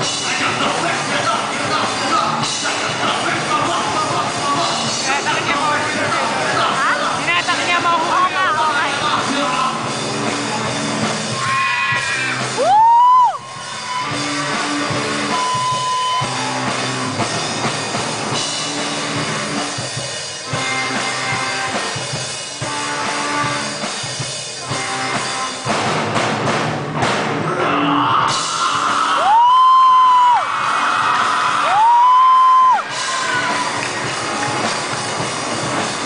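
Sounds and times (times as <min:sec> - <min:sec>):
rock band playing live: 0:00.0 - 0:36.0
high feedback squeal: 0:13.4 - 0:14.6, 0:15.2 - 0:16.7.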